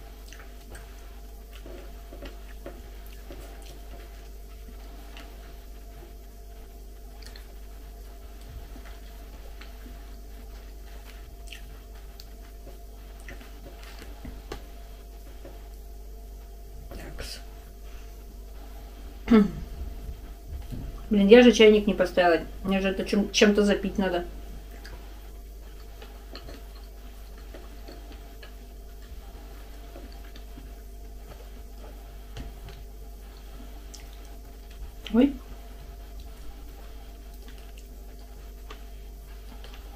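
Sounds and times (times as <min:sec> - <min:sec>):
steady low hum: 0:00.0 - 0:39.9
wet chewing: 0:00.1 - 0:05.6, 0:07.0 - 0:14.7, 0:24.6 - 0:39.9.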